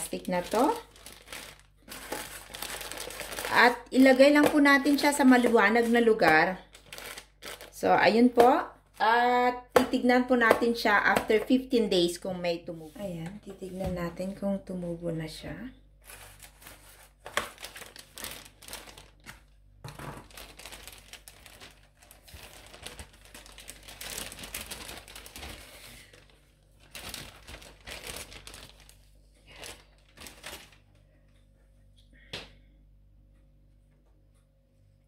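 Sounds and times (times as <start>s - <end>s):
plastic bag crinkling: 0.0s - 8.2s, 16.0s - 31.0s.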